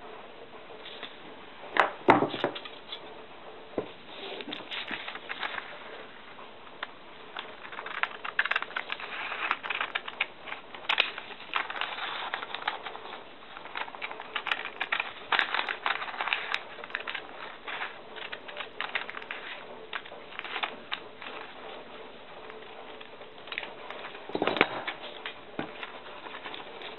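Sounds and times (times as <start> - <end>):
paper crackling and rustling: 3.9 - 26.9
scissors snipping paper: 7.6 - 26.9.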